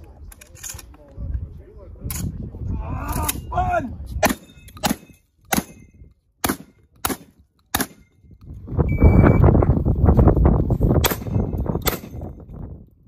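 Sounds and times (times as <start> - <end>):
wind buffeting microphone: 1.0 - 6.2, 8.2 - 13.0.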